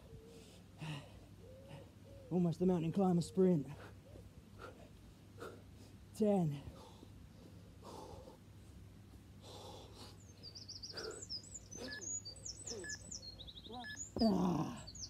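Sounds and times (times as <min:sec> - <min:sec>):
man breathing heavily: 0:00.2 - 0:02.0, 0:03.7 - 0:13.0
bird chirping: 0:10.1 - 0:15.0.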